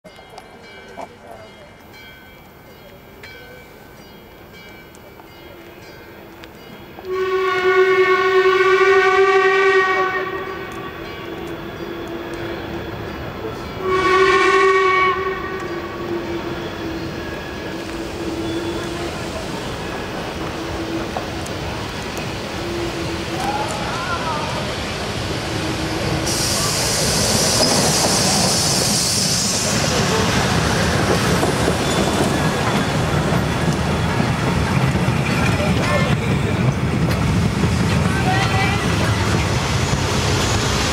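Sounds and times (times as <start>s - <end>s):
steam locomotive whistle: 7.0s - 13.0s, 13.8s - 19.6s, 22.5s - 24.7s, 25.3s - 30.4s
train wheels rumbling and clattering: 15.2s - 40.9s
steam locomotive hiss: 15.7s - 35.6s, 38.8s - 40.9s.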